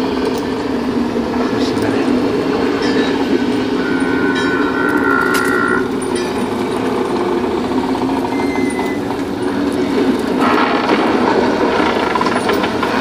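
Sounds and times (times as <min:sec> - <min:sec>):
spooky rumbling ambience: 0:00.0 - 0:13.0
steady high tone: 0:02.7 - 0:06.9.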